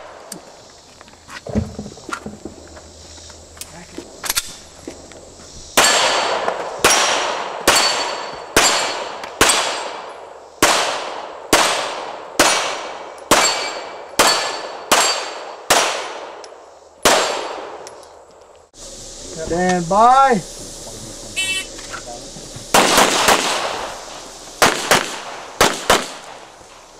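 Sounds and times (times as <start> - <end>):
pistol shots: 5.8 - 16.4, 17.0 - 17.8, 22.7 - 24.0, 24.6 - 26.5
steel plate target ringing: 6.8 - 9.1, 13.3 - 15.4.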